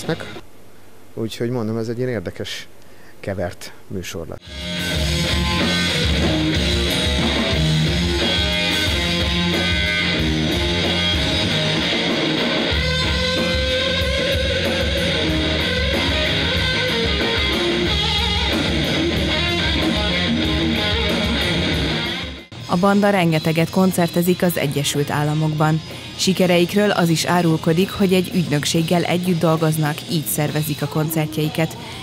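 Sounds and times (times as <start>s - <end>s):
electric guitar: 0.0s - 0.4s, 4.4s - 32.0s
electric bass: 4.4s - 22.6s
drum kit: 4.4s - 22.7s.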